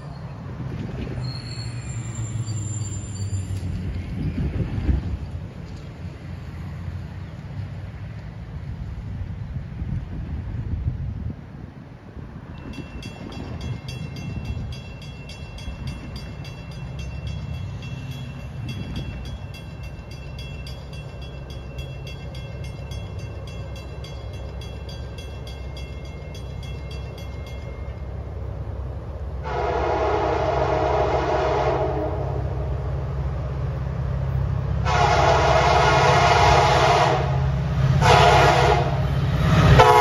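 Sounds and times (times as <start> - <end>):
bell ringing rapidly: 12.7 - 28.0
locomotive horn blast: 29.4 - 32.7, 34.8 - 40.0.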